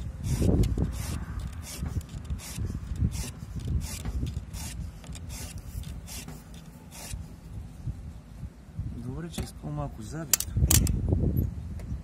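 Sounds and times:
file rasping on chainsaw chain: 0:00.0 - 0:07.4.

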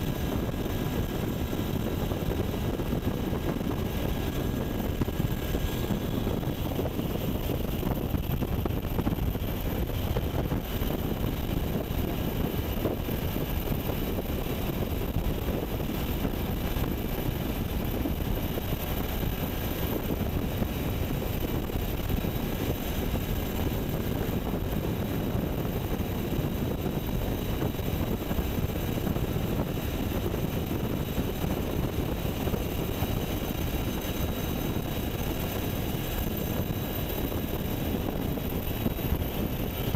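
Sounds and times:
helicopter rotor and engine rumble: 0:00.0 - 0:39.9.

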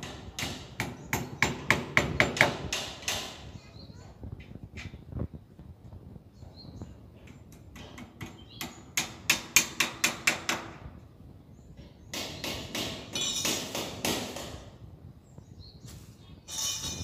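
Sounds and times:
metal scraping and rattling: 0:16.0 - 0:17.0.

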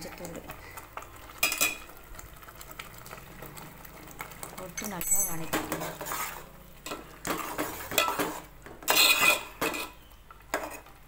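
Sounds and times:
masala frying in oil: 0:00.0 - 0:11.0
spoon scraping a metal pot: 0:05.1 - 0:10.9.

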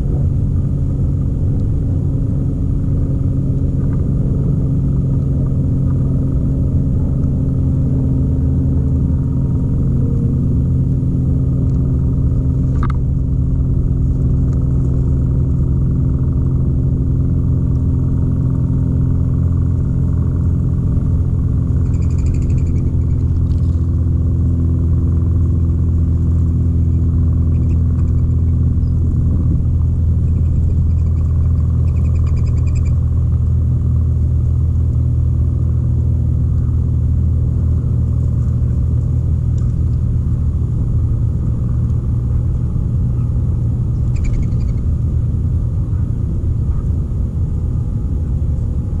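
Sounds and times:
low machine drone: 0:00.0 - 0:49.0
faint bird calls: 0:21.8 - 0:23.4, 0:26.8 - 0:29.0, 0:30.2 - 0:33.0, 0:44.0 - 0:44.9.

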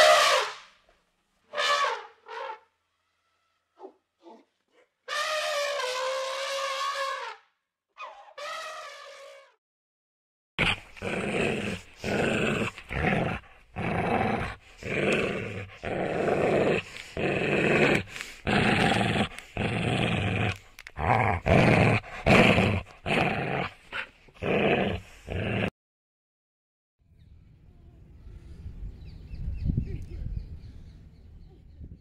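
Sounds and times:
puppy growling: 0:10.6 - 0:25.7.

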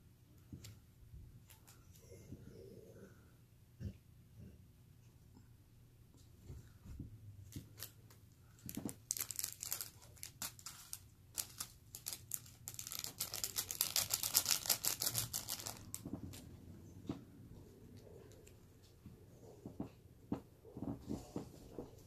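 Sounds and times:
plastic packet crinkling: 0:08.6 - 0:16.5.

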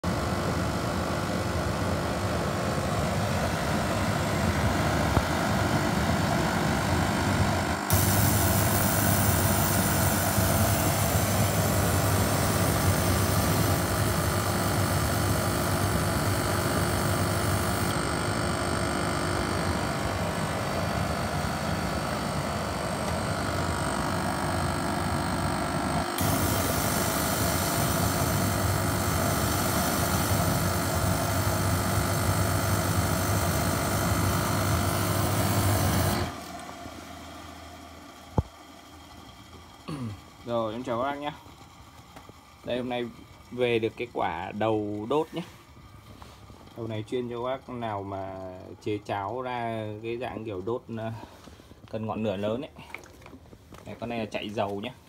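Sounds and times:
burner blower rushing: 0:00.1 - 0:37.7.

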